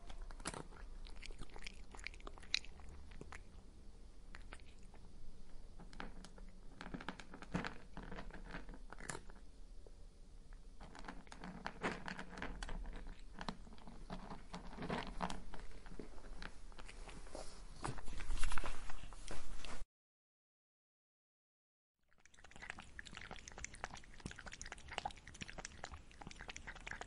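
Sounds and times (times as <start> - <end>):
cat crunching dry kibble: 0.1 - 3.6, 4.3 - 5.0, 10.8 - 17.1, 22.2 - 27.0.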